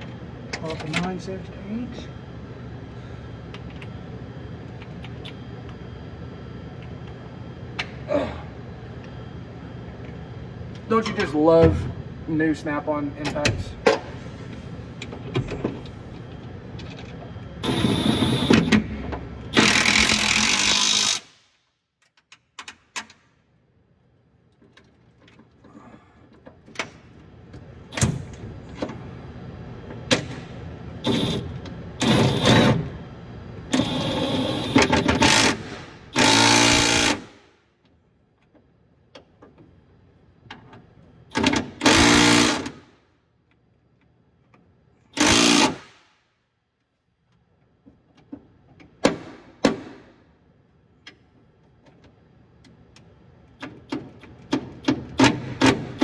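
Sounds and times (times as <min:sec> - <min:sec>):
cordless impact wrench hammering: 0:34.7 - 0:37.3, 0:45.2 - 0:46.0.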